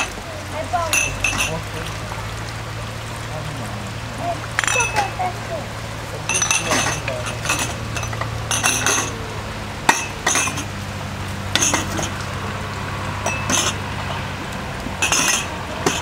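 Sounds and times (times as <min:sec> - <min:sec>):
light metallic clinks: 0:06.3 - 0:09.2, 0:15.0 - 0:16.0.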